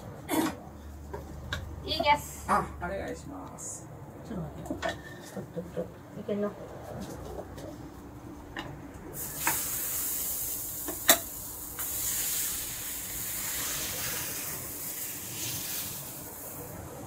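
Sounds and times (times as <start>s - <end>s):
batter sizzling on griddle: 9.2s - 17.0s.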